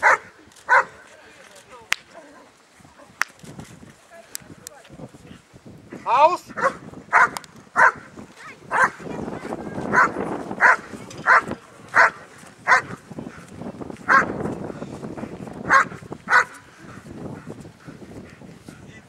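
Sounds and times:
dog barking sharply: 0.0 - 1.0, 6.6 - 8.0, 8.7 - 9.0, 15.7 - 16.6.

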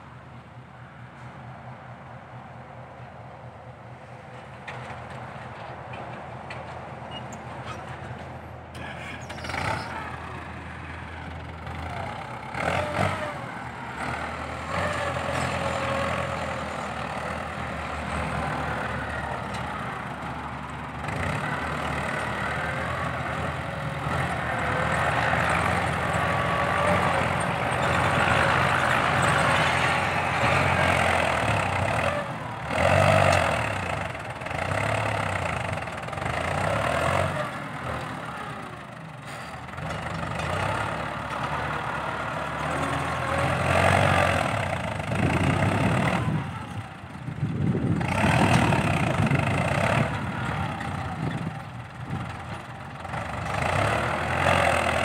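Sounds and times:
tractor diesel engine running: 1.9 - 55.0.

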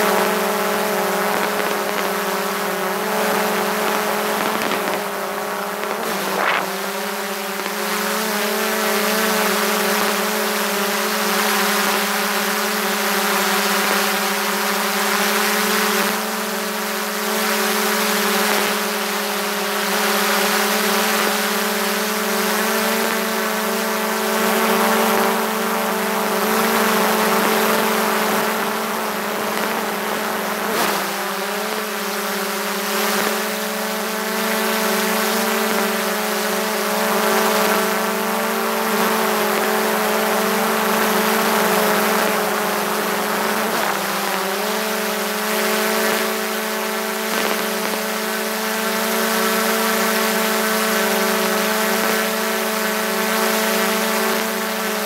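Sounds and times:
drone propellers whining: 0.1 - 10.6.

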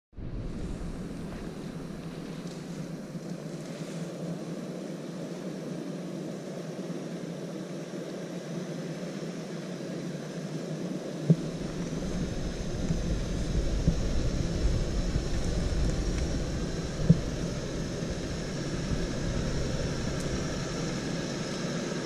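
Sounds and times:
suv engine droning: 0.2 - 4.8, 11.2 - 22.0.

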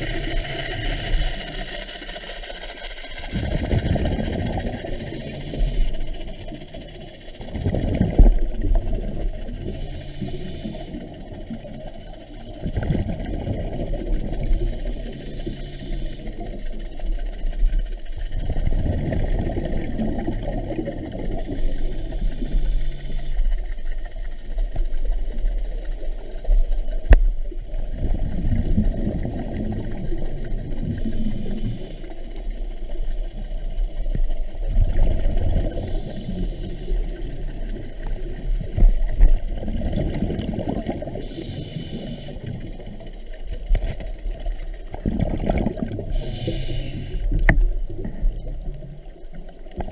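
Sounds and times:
regulator hisses: 41.2 - 42.5, 46.1 - 47.4
diver bubbling exhalation: 45.0 - 46.1.

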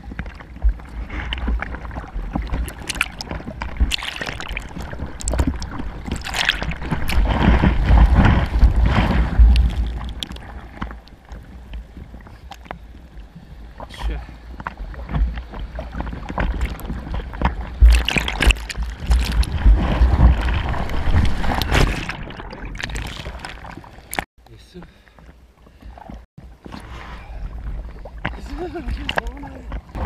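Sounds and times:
wind rumble on microphone: 0.0 - 22.6
water sloshing and splashing: 0.0 - 24.3, 25.0 - 30.0.

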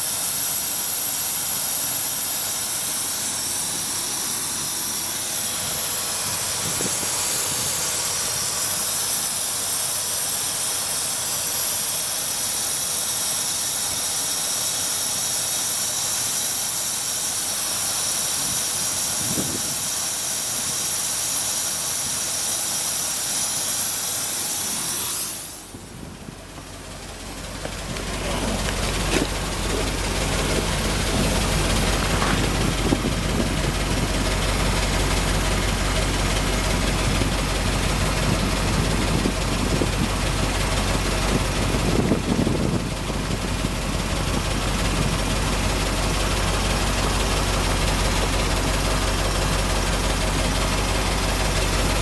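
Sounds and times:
engine idling: 0.0 - 52.0
steady hiss: 0.0 - 52.0
low rumble: 24.6 - 45.6.

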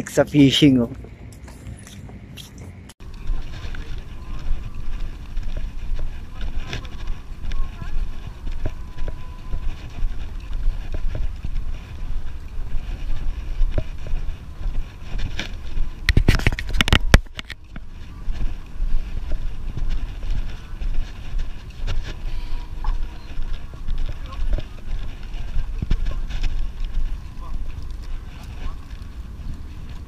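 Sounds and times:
wind on microphone: 1.7 - 30.0
camera handling noise: 15.3 - 17.8.

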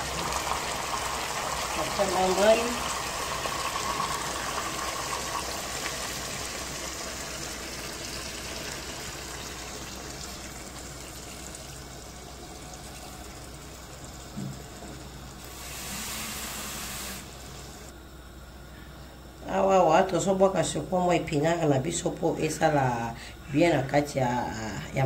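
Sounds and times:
water pouring into pot: 0.0 - 17.6.

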